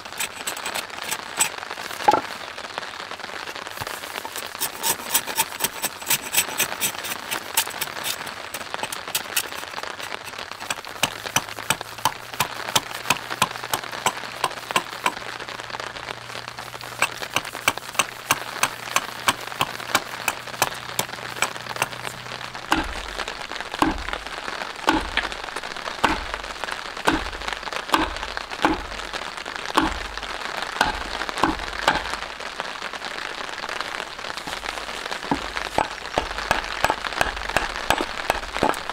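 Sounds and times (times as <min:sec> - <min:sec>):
knife chopping wooden board: 0:10.7 - 0:15.2, 0:17.0 - 0:22.0, 0:22.7 - 0:23.1, 0:23.8 - 0:24.2, 0:24.9 - 0:25.3, 0:26.0 - 0:26.4, 0:27.1 - 0:27.4, 0:28.0 - 0:29.0, 0:29.8 - 0:30.1, 0:30.8 - 0:32.2, 0:35.3 - 0:38.9
hatchet chops into wood: 0:11.0 - 0:15.2, 0:22.7 - 0:23.1, 0:23.8 - 0:24.2, 0:24.9 - 0:25.3, 0:26.0 - 0:26.4, 0:27.1 - 0:27.4, 0:28.0 - 0:29.0, 0:29.8 - 0:30.1, 0:30.8 - 0:32.2.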